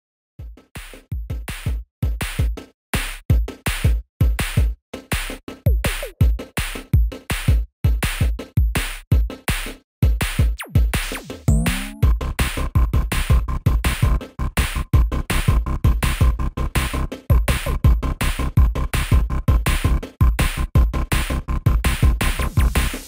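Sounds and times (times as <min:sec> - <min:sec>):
electronic music with drum-machine beat: 0:00.4 - 0:23.0
synth sweep and held chords: 0:11.5 - 0:12.1.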